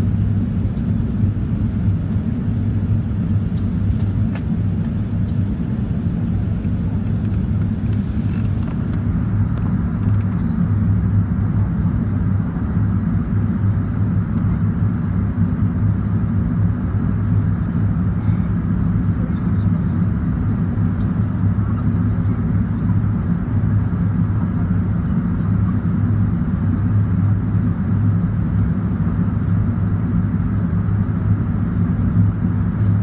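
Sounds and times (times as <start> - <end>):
jet engine rumble in cabin: 0.0 - 33.0.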